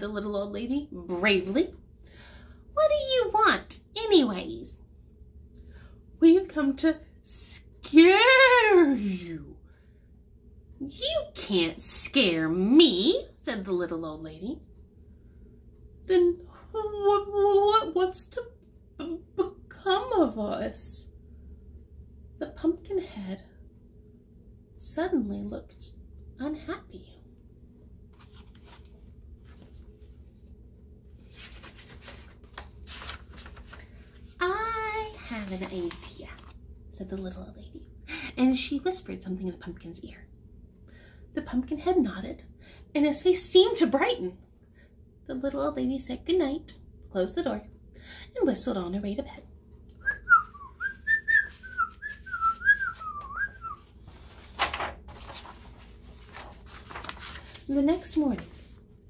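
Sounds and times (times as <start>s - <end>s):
woman's voice: 0.0s - 1.8s, 2.7s - 4.8s, 6.2s - 9.7s, 10.8s - 14.6s, 16.0s - 21.1s, 22.4s - 23.6s, 24.8s - 27.3s, 34.4s - 40.3s, 41.3s - 44.5s, 45.2s - 49.5s, 57.6s - 58.7s
paper pages rustling: 28.0s - 36.6s, 50.8s - 59.0s
person whistling a tune: 50.0s - 53.8s.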